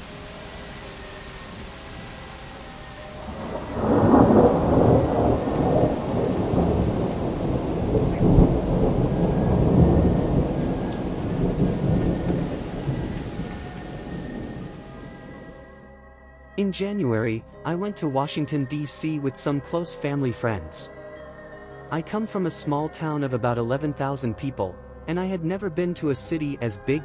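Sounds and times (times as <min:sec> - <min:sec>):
steady rain: 0:00.0 - 0:15.7
thunder rumbling: 0:03.0 - 0:15.8.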